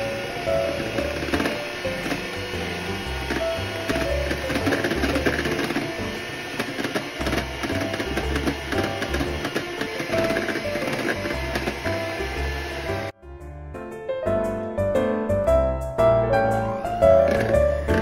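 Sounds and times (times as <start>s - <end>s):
electric hand mixer running: 0.0s - 13.2s, 16.8s - 18.0s
soft background music: 0.0s - 18.0s.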